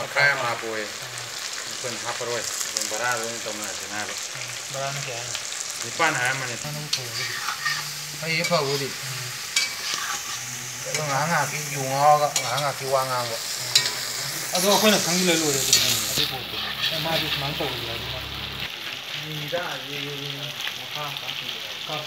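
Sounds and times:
pork sizzling in a wok: 0:00.0 - 0:22.0
stirring scrape: 0:06.9 - 0:15.0, 0:15.7 - 0:17.8.

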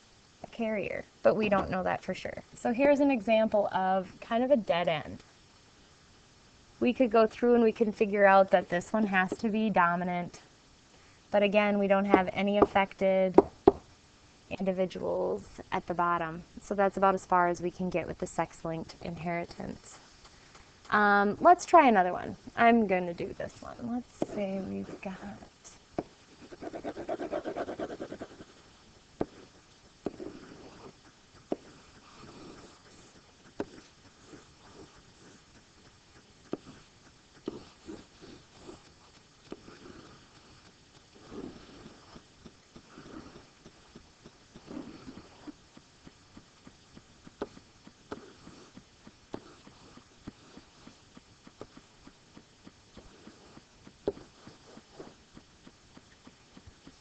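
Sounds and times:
pen scribbling: 0:26.3 - 0:45.6, 0:46.9 - 0:51.8, 0:52.9 - 0:55.2
marker pen tapping on whiteboard: 0:30.0 - 0:30.4.

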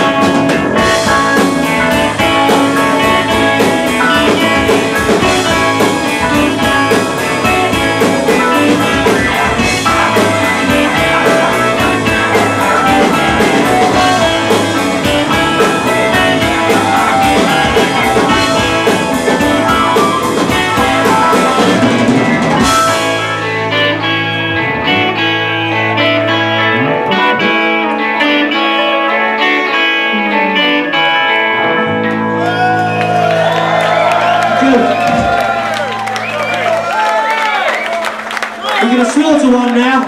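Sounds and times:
rock band playing loud: 0:00.0 - 0:39.8.

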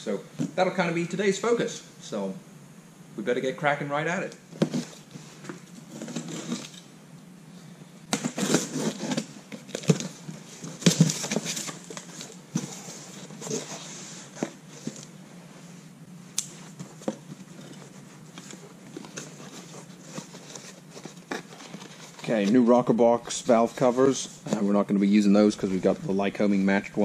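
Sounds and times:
paper and cardboard rustling: 0:08.1 - 0:15.1, 0:16.7 - 0:24.8.

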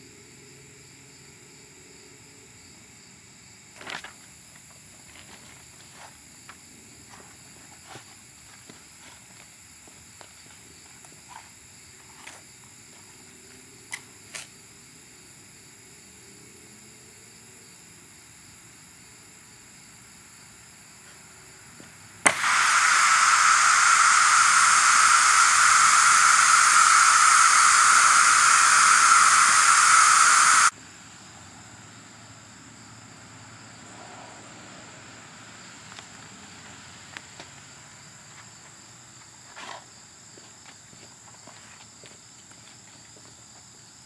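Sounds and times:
air release click: 0:22.2 - 0:30.7
compressed air hissing: 0:22.2 - 0:30.8.

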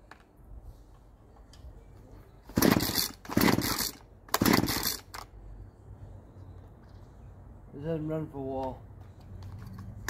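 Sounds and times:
chainsaw starter cord rips: 0:02.5 - 0:05.3.

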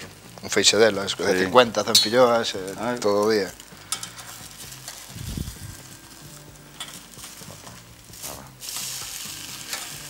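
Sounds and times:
crepe sizzling in a frying pan: 0:00.0 - 0:10.0
spatula scraping a pan: 0:03.8 - 0:05.1.

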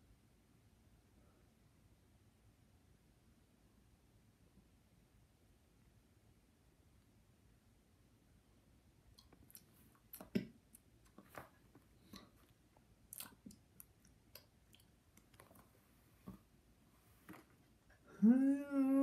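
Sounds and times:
mouth clicks and lip smacks: 0:09.1 - 0:15.8.

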